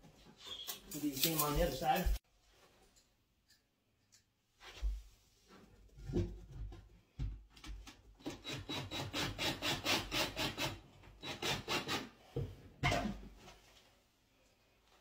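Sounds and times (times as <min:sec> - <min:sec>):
cordless drill driving screws: 0:08.2 - 0:12.1.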